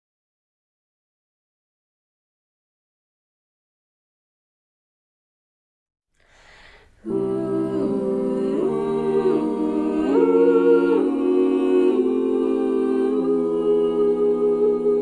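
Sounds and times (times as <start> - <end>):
faint hiss: 6.2 - 10.8
a cappella group singing chords: 6.4 - 15.0.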